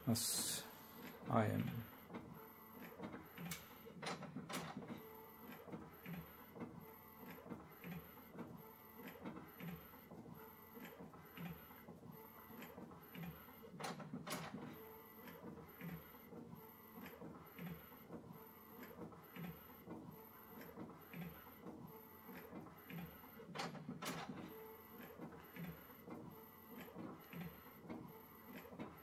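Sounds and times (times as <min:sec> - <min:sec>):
inkjet printer printing: 0:00.2 - 0:29.0
printer clicks: 0:02.9 - 0:05.0, 0:12.6 - 0:14.7, 0:22.9 - 0:24.5.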